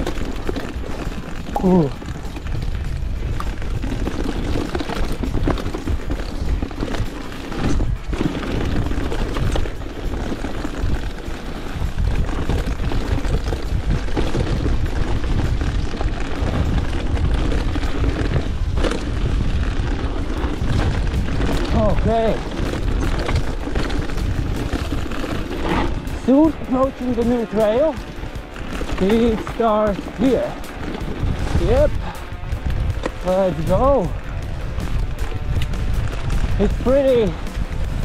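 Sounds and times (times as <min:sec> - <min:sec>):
bike rattling and knocking: 0:00.0 - 0:38.0
wind and tyre rumble: 0:00.0 - 0:38.0.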